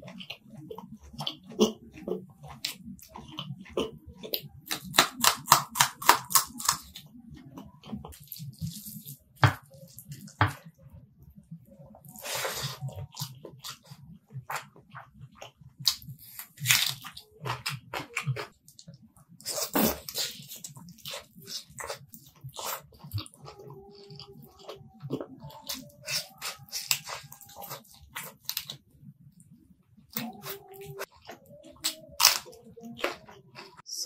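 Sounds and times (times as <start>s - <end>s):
wet chewing: 0.0s - 10.8s, 11.9s - 34.0s.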